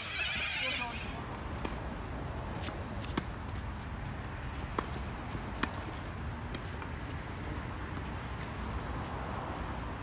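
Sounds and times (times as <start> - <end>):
racquets striking tennis ball: 1.6 - 2.0, 2.6 - 7.0
ball bouncing on court: 4.7 - 6.8.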